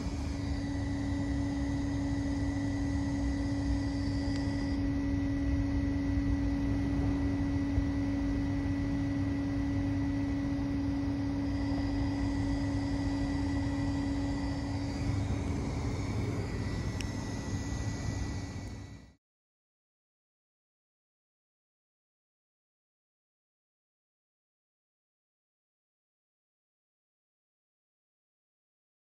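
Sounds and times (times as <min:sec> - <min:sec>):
steady mechanical hum: 0:00.0 - 0:19.2.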